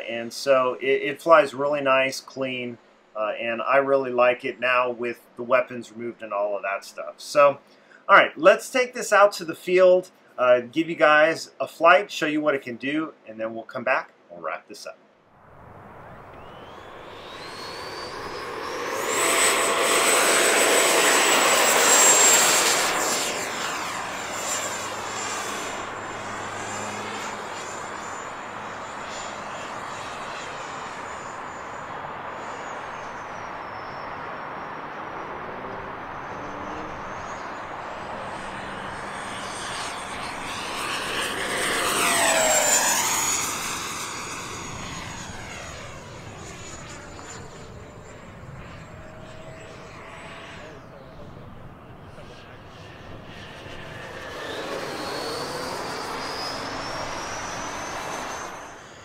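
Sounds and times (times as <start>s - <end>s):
rushing air: 15.4s - 46.5s
electric ducted fan whine: 15.4s - 59.0s.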